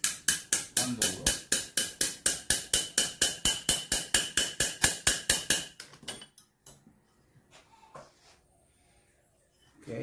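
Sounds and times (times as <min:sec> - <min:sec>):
hammer tapping on metal: 0:00.0 - 0:05.8.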